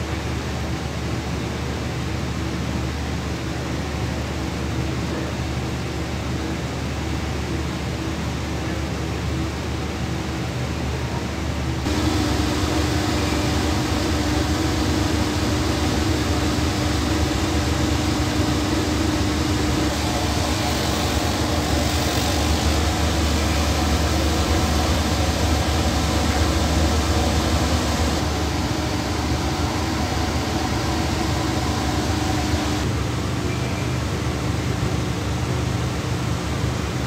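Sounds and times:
laser machine humming: 0:11.9 - 0:32.9.

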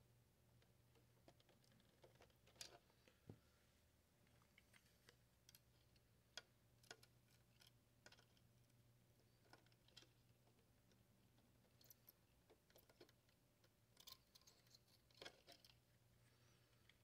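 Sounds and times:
faint low hum: 0:00.0 - 0:17.0
faint ticks and clicks: 0:04.2 - 0:17.0.

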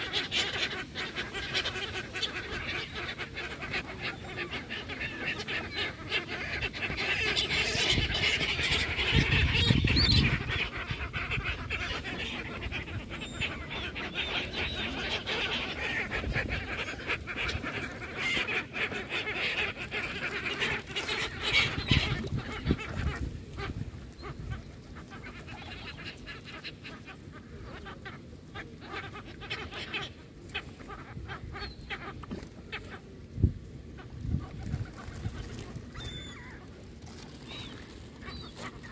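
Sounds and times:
gulls and ducks calling: 0:00.0 - 0:33.2, 0:33.8 - 0:38.9
wings flapping: 0:34.4 - 0:38.9.

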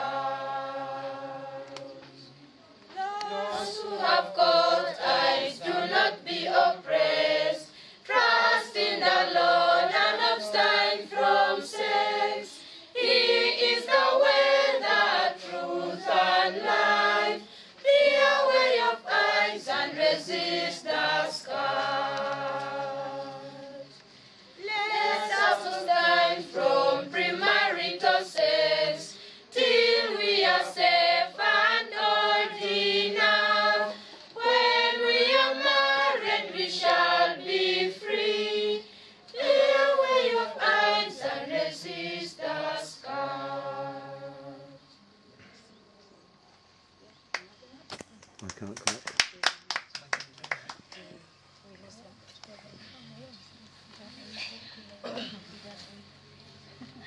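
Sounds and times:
small choir singing in harmony: 0:00.0 - 0:45.0.

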